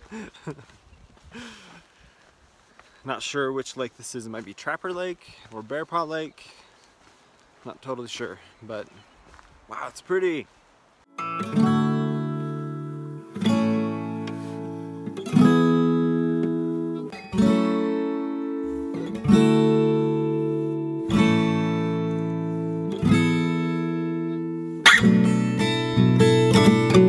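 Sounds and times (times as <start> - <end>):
acoustic guitar strummed chords: 11.1 - 27.0.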